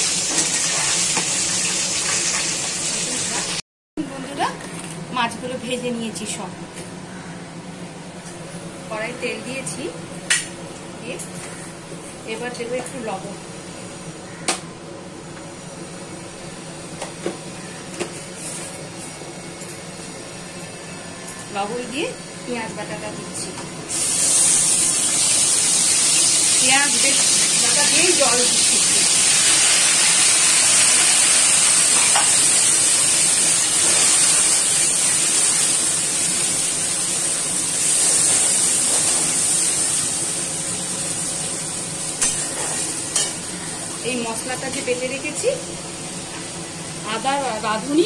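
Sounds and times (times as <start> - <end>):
paste sizzling in hot oil: 0.0 - 3.6, 23.9 - 44.7
kitchen hum and hiss: 0.0 - 48.0.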